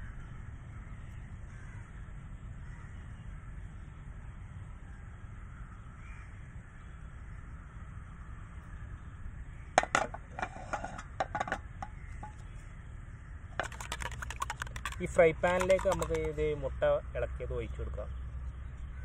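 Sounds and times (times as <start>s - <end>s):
frying pan clicking on stove stand: 9.8s - 12.4s, 13.6s - 16.4s.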